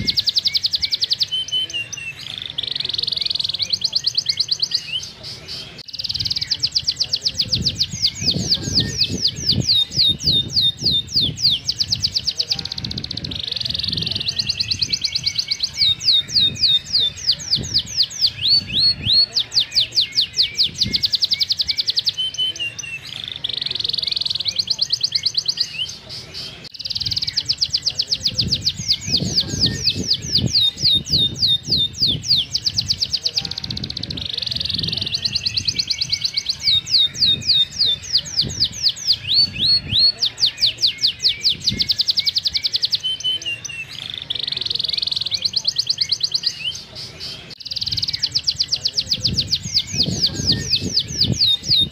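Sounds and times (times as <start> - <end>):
canary singing: 0.0 - 51.9.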